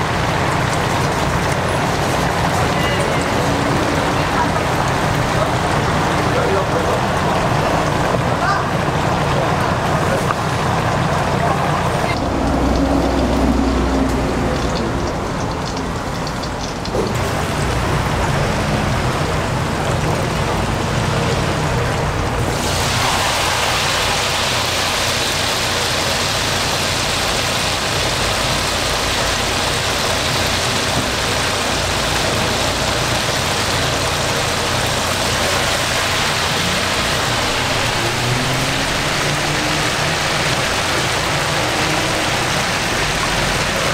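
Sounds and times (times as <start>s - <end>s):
oil bubbling and sizzling in fryer: 0.0s - 43.9s.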